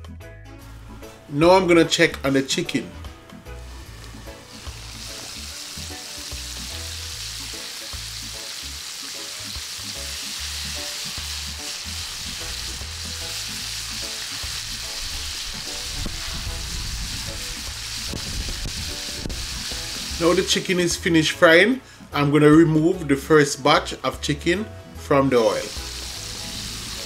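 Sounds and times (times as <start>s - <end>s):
chicken deep-frying in oil: 4.2s - 20.7s, 25.5s - 27.0s.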